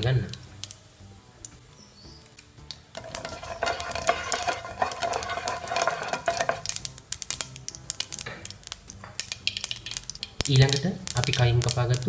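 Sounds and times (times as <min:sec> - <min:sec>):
seeds crackling and popping in oil: 0:00.0 - 0:12.0
spatula scraping frying pan: 0:03.0 - 0:06.8.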